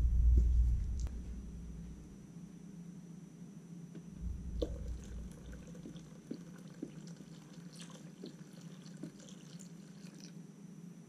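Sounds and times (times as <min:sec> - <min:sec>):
low steady hum: 0:00.0 - 0:11.0
small drips and splashes: 0:04.5 - 0:10.4
liquid trickling into a cup: 0:04.6 - 0:10.4.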